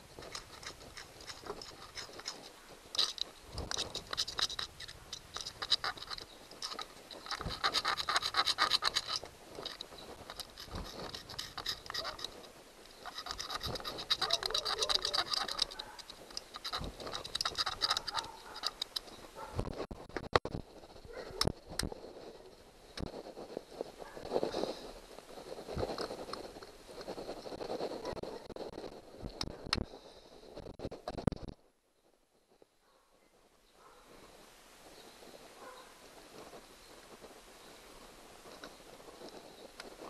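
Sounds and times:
screwdriver scraping metal: 0.0 - 19.5.

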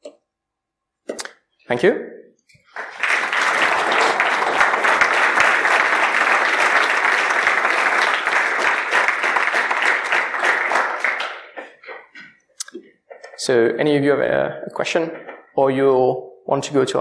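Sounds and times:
audience applauding: 2.7 - 12.1.

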